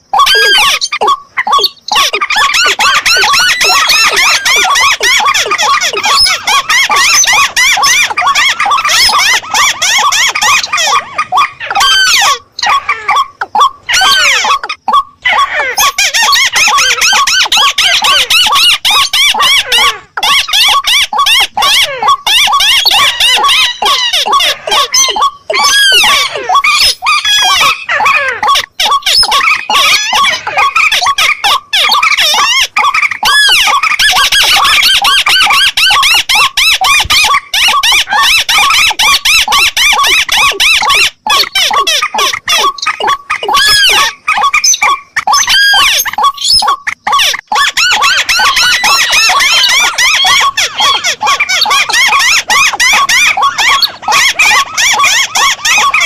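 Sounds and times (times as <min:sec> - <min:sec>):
waterbirds calling: 0:00.0 - 0:56.0.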